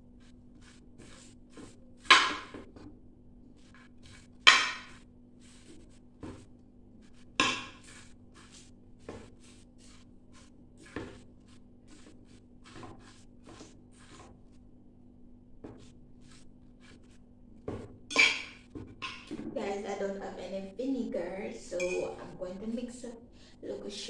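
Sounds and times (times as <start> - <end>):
metal fork scraping metal pot: 18.1 - 19.3.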